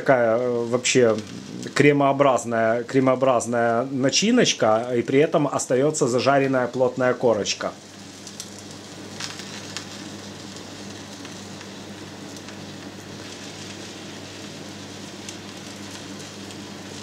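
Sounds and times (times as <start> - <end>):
cheese sizzling in a pan: 0.0 - 17.0.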